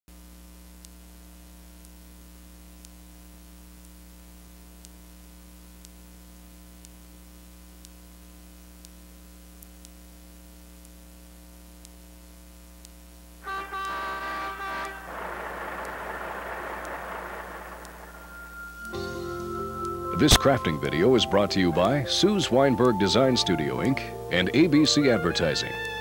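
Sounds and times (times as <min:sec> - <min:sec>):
electrical hum and tape hiss: 0:00.1 - 0:26.0
faint ticks: 0:00.4 - 0:13.2.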